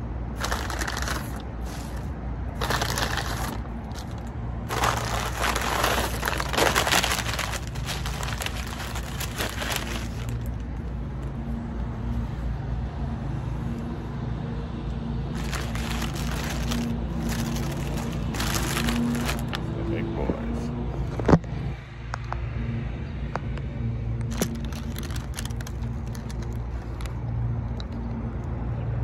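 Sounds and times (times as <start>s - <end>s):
paper bag and wrappers crinkling: 0.3s - 10.8s, 15.4s - 19.7s, 24.3s - 27.2s.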